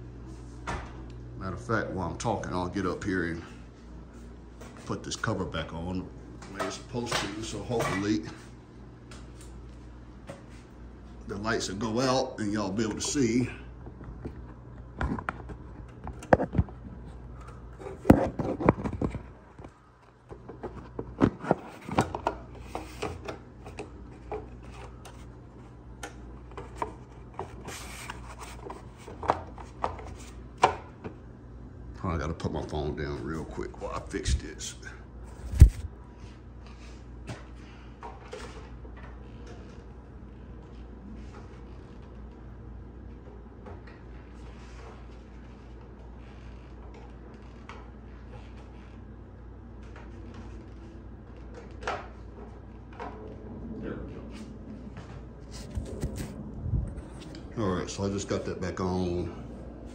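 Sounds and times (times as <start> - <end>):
faint low hum: 0.0 - 59.9.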